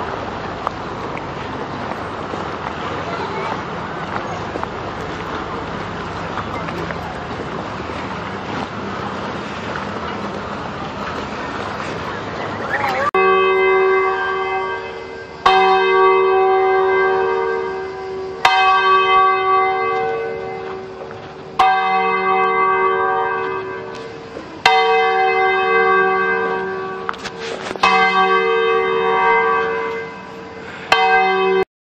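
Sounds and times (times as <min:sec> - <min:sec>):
church bell tolling: 0:12.8 - 0:31.6.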